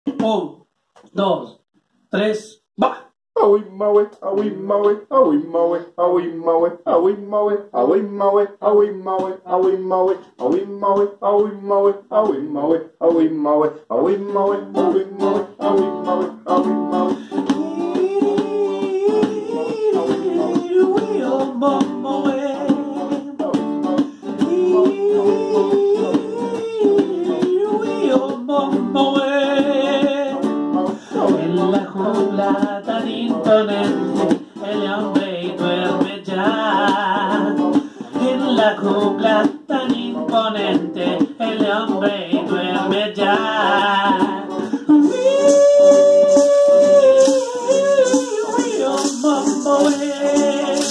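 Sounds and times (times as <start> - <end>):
person singing: 2.8 - 50.9
strummed acoustic guitar: 14.0 - 50.9
hand drum slapped: 16.2 - 28.9, 32.5 - 37.9.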